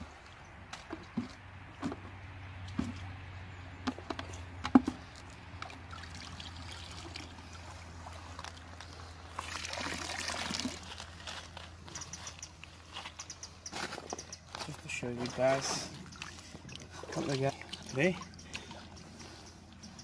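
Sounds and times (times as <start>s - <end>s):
water trickling and splashing: 4.3s - 20.0s.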